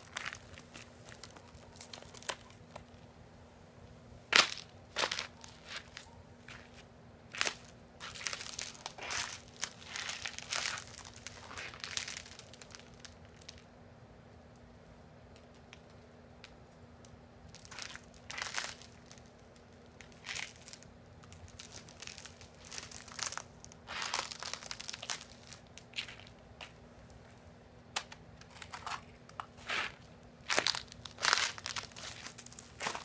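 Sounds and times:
ice-laden trees crackling: 0:00.0 - 0:03.0, 0:07.3 - 0:13.7, 0:17.5 - 0:26.4, 0:29.6 - 0:33.0.

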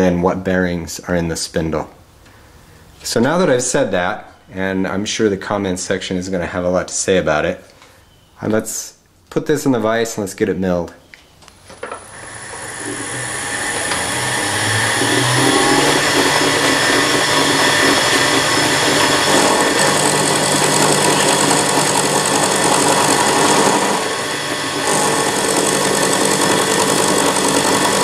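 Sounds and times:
milling machine cutting metal: 0:11.8 - 0:28.0.

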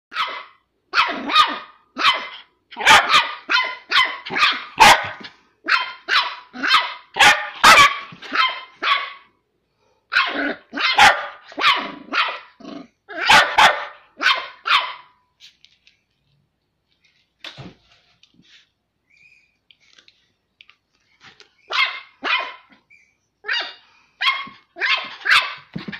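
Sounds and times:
puppy barking high-pitched: 0:00.1 - 0:09.3, 0:10.1 - 0:15.2, 0:21.6 - 0:25.9.

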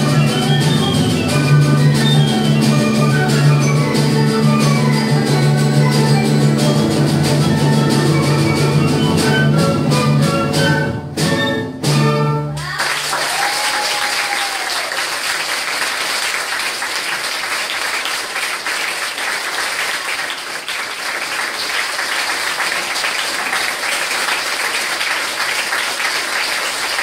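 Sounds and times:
audience applauding: 0:12.6 - 0:27.0.

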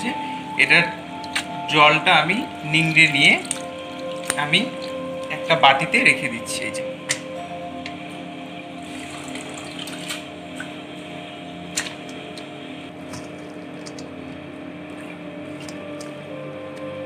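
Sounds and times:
steady hum: 0:00.0 - 0:17.0
water dripping and splashing into bowl: 0:01.2 - 0:01.6, 0:02.5 - 0:05.5, 0:08.8 - 0:10.8, 0:13.1 - 0:14.1.

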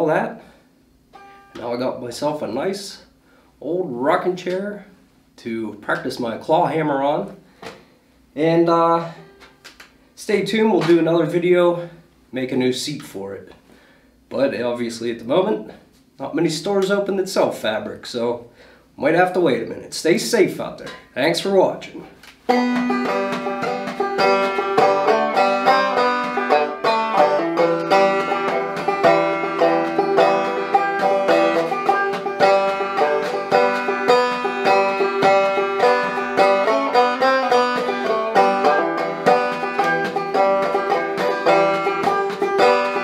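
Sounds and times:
banjo plucked notes: 0:22.5 - 0:43.0.

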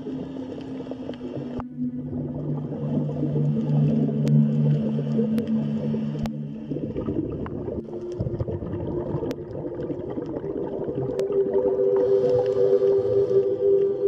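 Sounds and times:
ambient music with held tones: 0:00.0 - 0:14.0.

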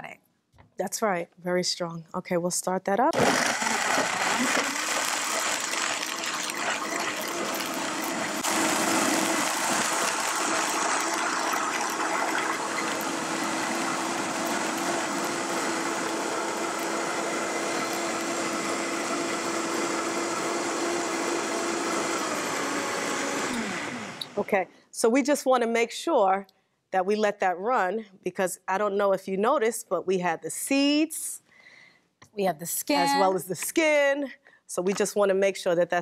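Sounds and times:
blender running: 0:03.2 - 0:24.5.

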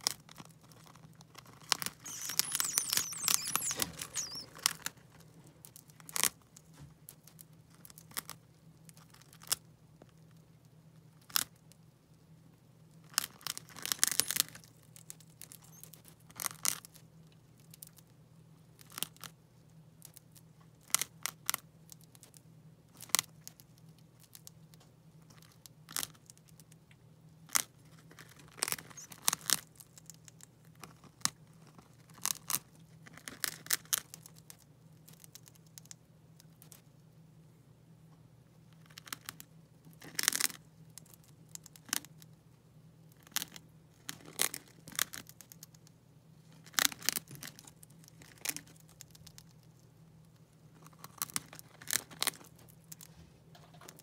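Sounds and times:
gerbils gnawing crunchy wafer: 0:00.0 - 0:10.4, 0:27.4 - 0:36.9, 0:38.8 - 0:42.4, 0:43.0 - 0:54.0.

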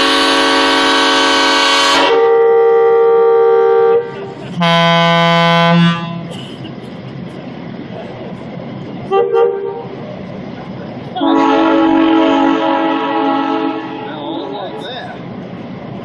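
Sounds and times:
diesel locomotive air horns: 0:00.0 - 0:06.5, 0:09.1 - 0:10.0, 0:11.2 - 0:14.8.

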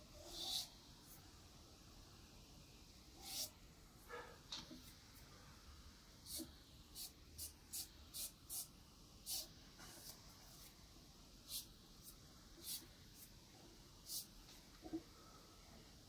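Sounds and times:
pastel swishing on paper: 0:03.2 - 0:03.5.

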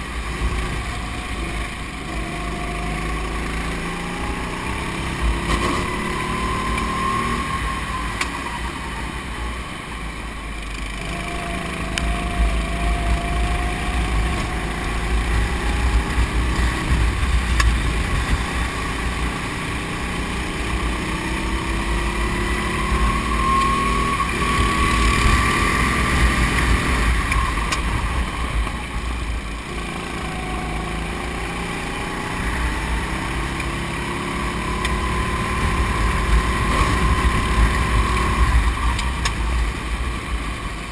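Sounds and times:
kart engine revving: 0:00.0 - 0:09.8, 0:10.5 - 0:40.9.

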